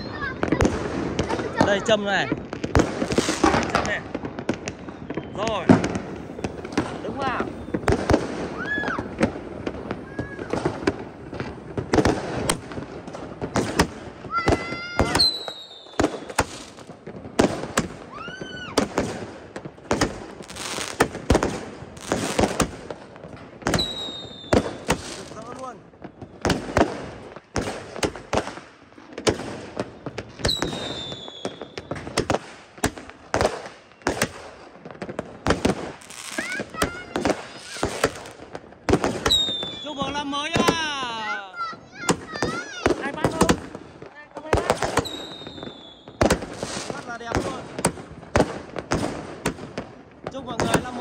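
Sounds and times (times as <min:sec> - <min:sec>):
firework bangs and pops: 0:00.0 - 0:51.0
firework whistle: 0:04.7 - 0:09.3, 0:14.4 - 0:16.8, 0:18.1 - 0:18.9, 0:23.7 - 0:25.3, 0:29.8 - 0:32.0, 0:39.2 - 0:40.1, 0:44.9 - 0:47.0.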